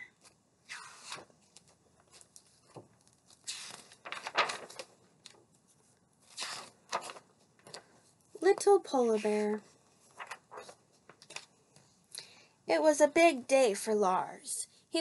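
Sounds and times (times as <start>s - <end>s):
book pages rustling: 0.2s - 12.0s.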